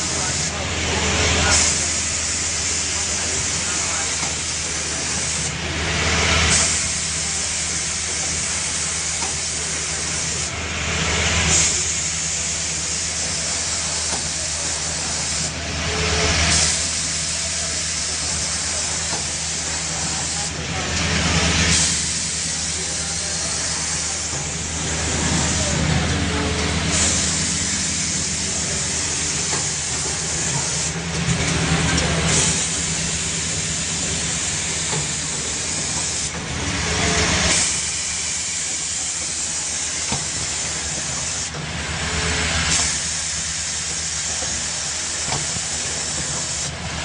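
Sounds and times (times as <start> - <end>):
compressed air hissing: 0.0 - 5.6, 6.4 - 10.6, 11.4 - 46.8
pneumatic hissing surges: 0.0 - 47.0
machine humming: 14.9 - 44.9.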